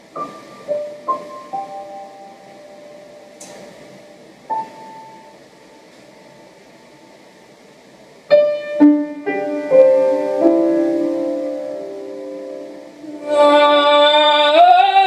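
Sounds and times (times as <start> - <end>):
piano notes ringing: 0.0 - 7.2, 8.3 - 15.0.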